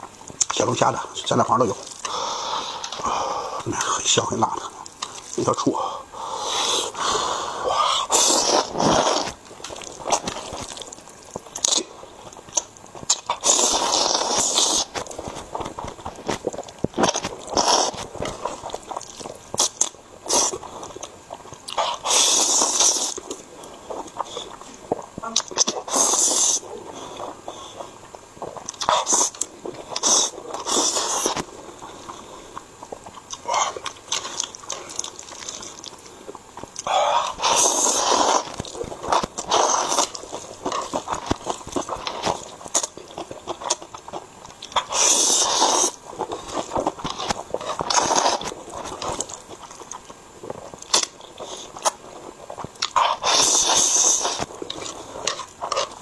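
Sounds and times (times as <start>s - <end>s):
wet chewing: 0.0s - 56.0s
man slurping noodles: 6.3s - 10.8s, 13.1s - 15.4s, 16.4s - 20.9s, 21.7s - 23.4s, 25.8s - 31.5s, 36.8s - 42.4s, 44.8s - 49.4s, 52.8s - 56.0s.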